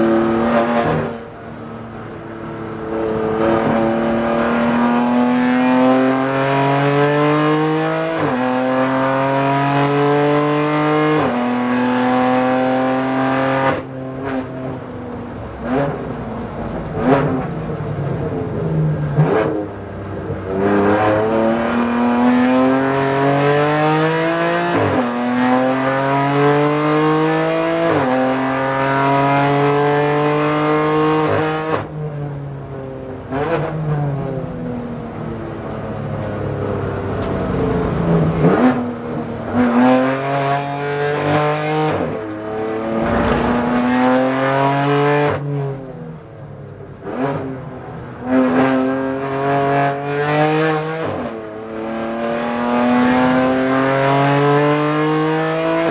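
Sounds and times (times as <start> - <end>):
race car engine revving: 20.4 - 31.9, 36.0 - 45.8, 47.0 - 55.9.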